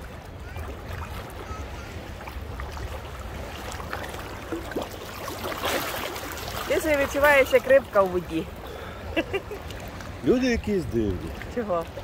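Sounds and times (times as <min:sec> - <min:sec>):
sea water splashing in shallows: 0:00.0 - 0:12.0.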